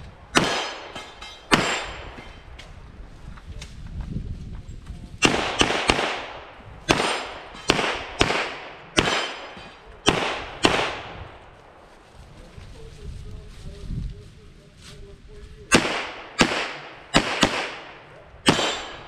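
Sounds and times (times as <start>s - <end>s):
pistol shots with echo: 0.3s - 2.2s, 5.2s - 11.4s, 15.7s - 19.0s.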